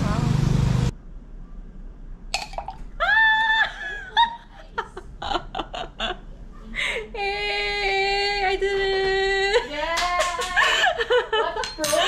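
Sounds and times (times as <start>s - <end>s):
woman laughing: 3.0s - 7.7s, 9.4s - 12.0s.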